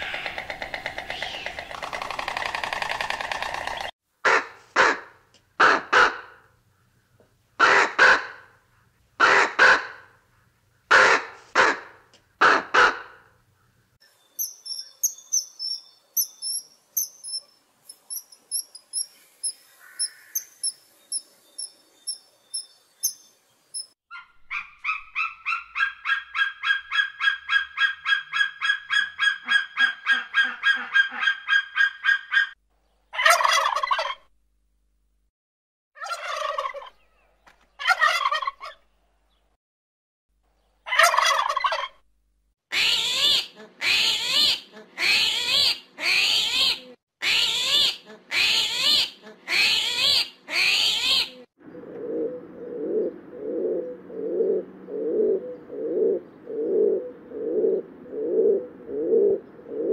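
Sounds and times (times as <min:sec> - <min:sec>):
fast repeated bird calls: 0:00.0 - 0:03.9
high thin bird chirps: 0:14.0 - 0:25.9
turkeys gobbling: 0:24.2 - 0:32.5, 0:33.2 - 0:34.2, 0:36.0 - 0:37.0, 0:37.8 - 0:38.8, 0:40.9 - 0:42.0
raven croaking: 0:51.7 - 0:59.9.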